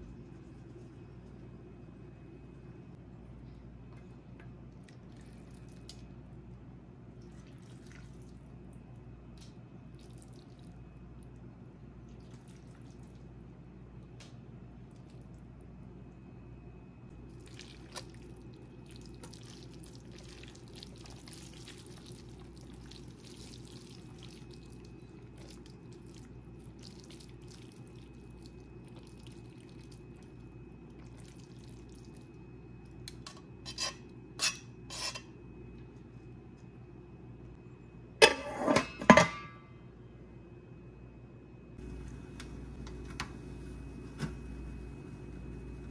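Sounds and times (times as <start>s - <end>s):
tongs moving wet noodles: 17.4s - 30.4s
metal lid clattering on pot: 38.2s - 39.6s.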